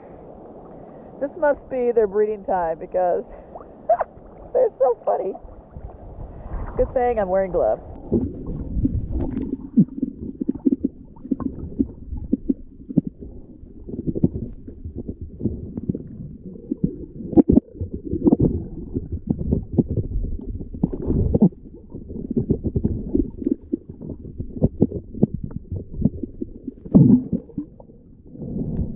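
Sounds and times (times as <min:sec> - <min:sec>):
water moving against camera: 0:00.0 - 0:28.9
low underwater knocks and pops: 0:07.9 - 0:13.3, 0:14.0 - 0:28.0.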